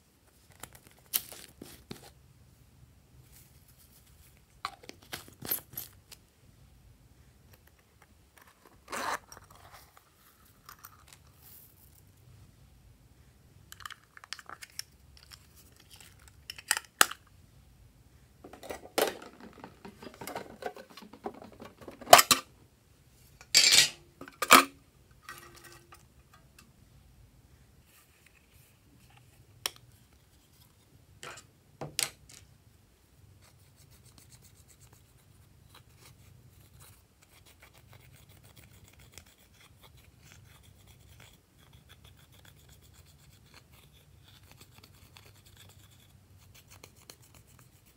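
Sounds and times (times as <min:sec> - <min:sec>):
plastic cases clicking: 0:18.5 - 0:22.4.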